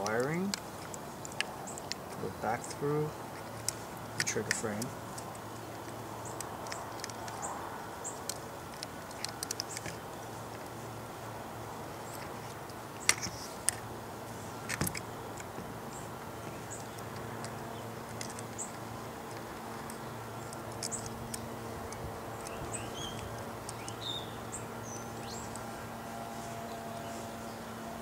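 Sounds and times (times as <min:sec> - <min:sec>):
metal clicks of handled marker: 0:00.0 - 0:10.7, 0:12.0 - 0:13.9, 0:14.7 - 0:15.6, 0:16.4 - 0:24.2
steady low hum: 0:00.0 - 0:28.0
faint bird chirps: 0:19.8 - 0:27.8.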